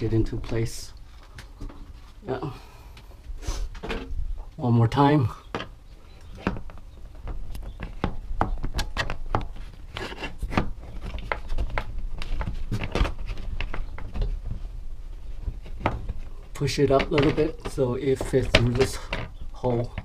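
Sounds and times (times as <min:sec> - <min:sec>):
plastic knocks and rubs: 0:05.5 - 0:20.0.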